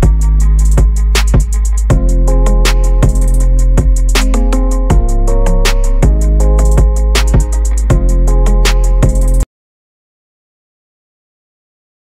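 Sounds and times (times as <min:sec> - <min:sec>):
background music with beat: 0:00.0 - 0:09.4.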